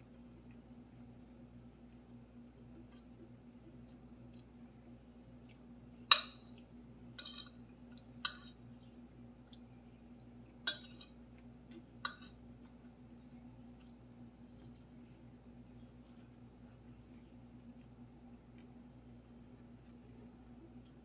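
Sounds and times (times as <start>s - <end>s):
faint steady hum: 0.0s - 21.0s
cutlery clinking on plate: 7.2s - 7.6s.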